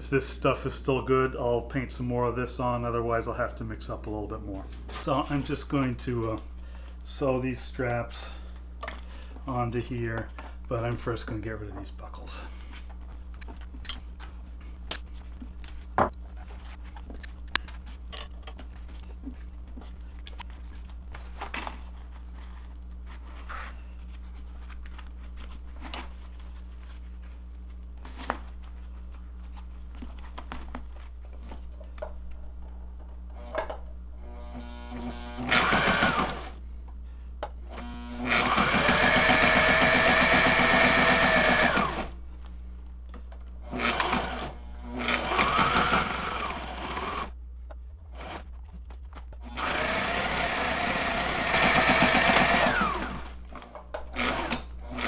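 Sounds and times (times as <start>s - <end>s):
sewing machine stitching: 35.0s - 36.5s, 38.2s - 42.1s, 43.7s - 47.3s, 49.5s - 53.3s, 54.1s - 55.0s.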